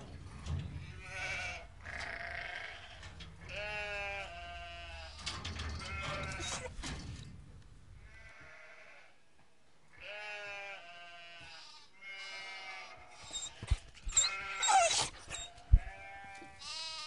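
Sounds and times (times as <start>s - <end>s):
sheep bleating: 1.0s - 5.3s, 10.0s - 17.0s.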